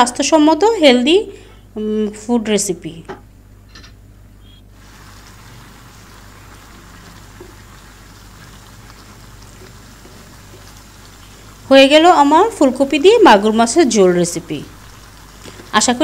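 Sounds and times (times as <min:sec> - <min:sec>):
curry simmering in a pan: 0:04.8 - 0:16.0.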